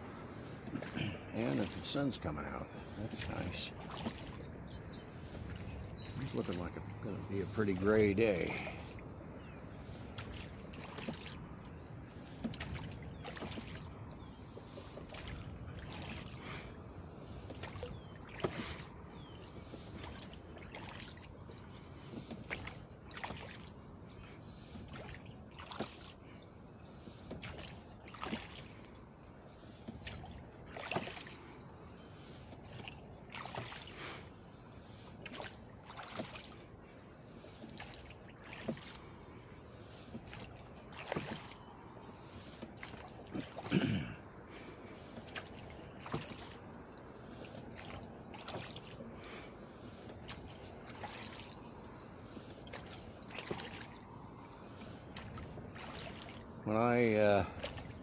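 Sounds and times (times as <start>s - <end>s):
water washing: 0.0s - 4.5s, 5.3s - 58.0s
oars knocking in oarlocks: 12.3s - 16.3s, 17.4s - 23.6s, 24.8s - 26.1s, 27.2s - 28.7s, 40.0s - 41.6s, 42.4s - 44.2s, 45.1s - 46.6s.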